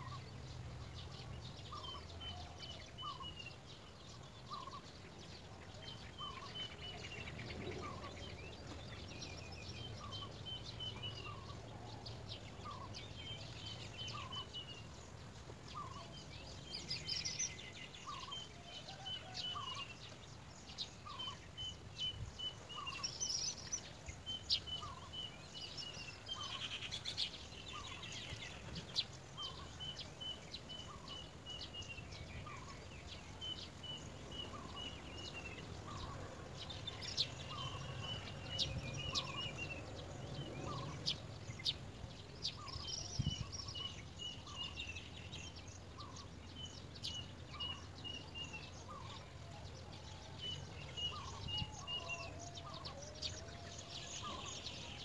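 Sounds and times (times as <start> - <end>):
higher bird chirps: 20.8 - 55.0.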